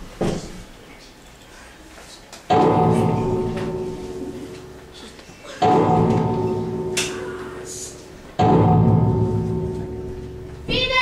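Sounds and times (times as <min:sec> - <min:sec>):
deep keyboard chord: 0:02.5 - 0:11.0.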